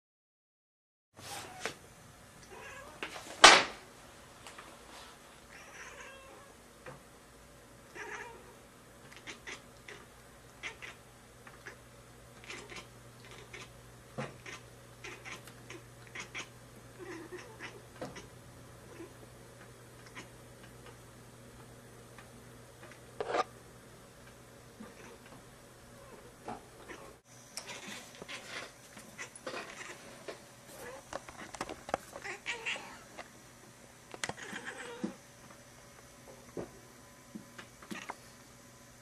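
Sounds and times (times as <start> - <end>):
cat meowing: 2.5 - 3.0, 5.5 - 6.5, 8.0 - 8.5, 10.6 - 11.0, 14.4 - 18.3, 34.4 - 35.2.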